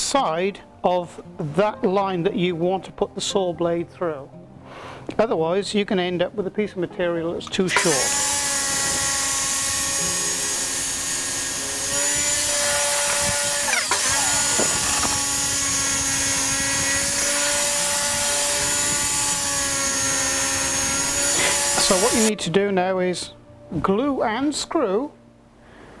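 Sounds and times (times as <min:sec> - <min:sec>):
table saw whining: 0:07.7 - 0:22.3.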